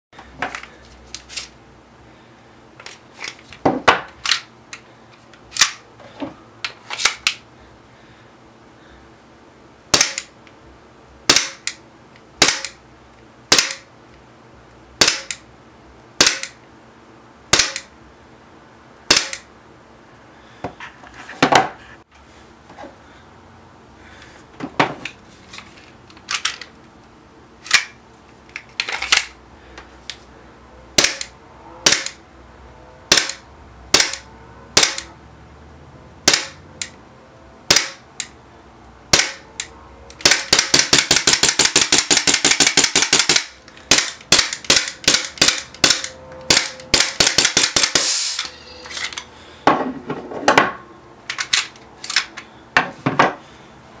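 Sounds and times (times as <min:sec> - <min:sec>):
airsoft pistol shots: 0:09.9 - 0:10.3, 0:11.3 - 0:11.6, 0:12.4 - 0:12.8, 0:13.5 - 0:13.8, 0:15.0 - 0:15.3, 0:37.7 - 0:38.0.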